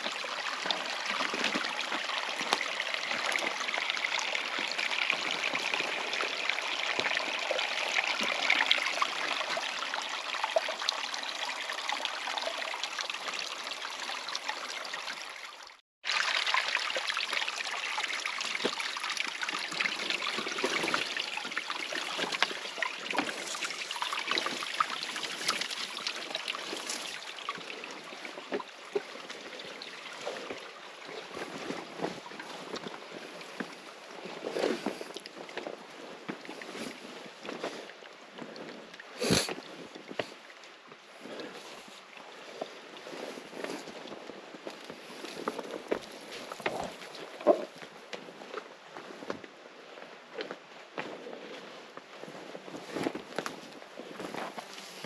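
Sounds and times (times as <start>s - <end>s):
stream water rushing: 0.0s - 38.0s.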